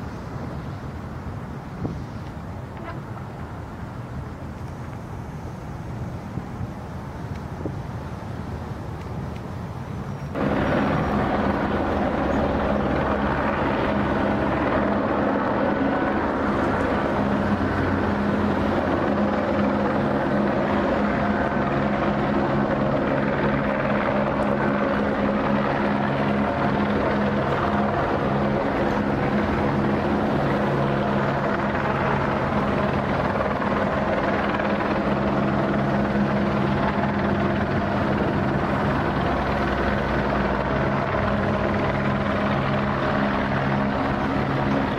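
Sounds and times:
engine drone: 0.0 - 44.9
rushing noise: 9.6 - 44.9.

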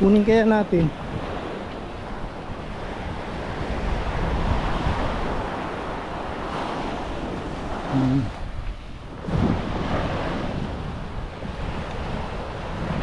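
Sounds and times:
ocean surf breaking: 0.0 - 13.0
wind rumbling on microphone: 0.0 - 13.0.

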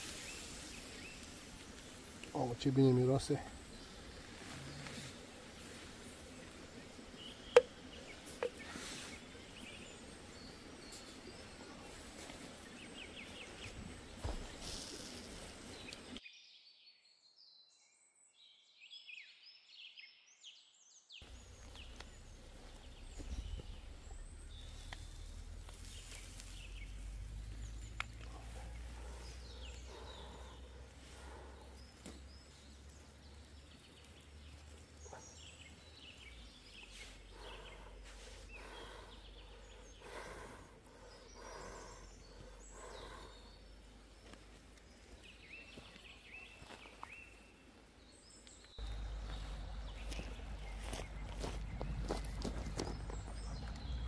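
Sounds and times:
rustles: 0.0 - 16.2, 21.2 - 54.0
songbirds chirping: 0.0 - 54.0
steady low rumble: 48.8 - 54.0.

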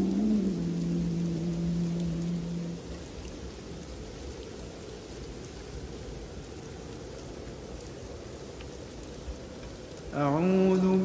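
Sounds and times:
person reciting: 0.0 - 2.9, 10.1 - 11.0
rain falling: 0.0 - 11.0.

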